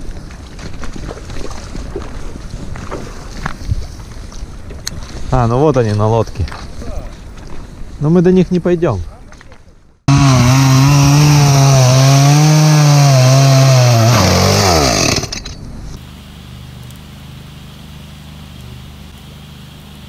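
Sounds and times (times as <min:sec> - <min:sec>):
chainsaw sawing through log: 0:10.1 - 0:15.5.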